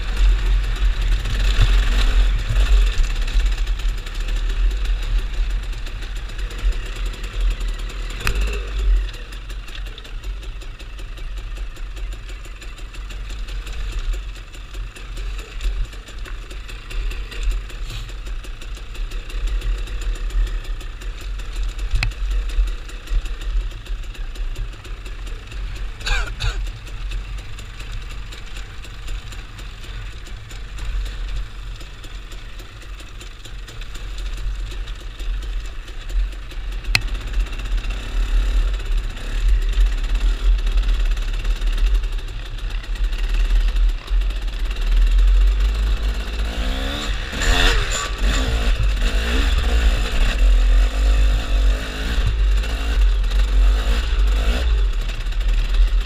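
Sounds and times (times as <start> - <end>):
vehicle engine idling: 0.0 - 56.0.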